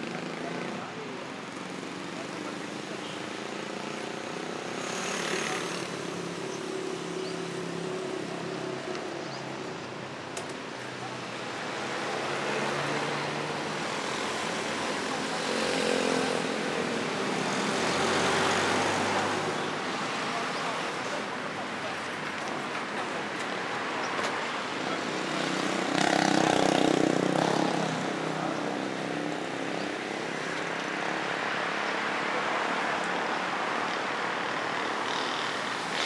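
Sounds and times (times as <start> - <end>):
vehicles passing on a street: 0.0 - 36.0.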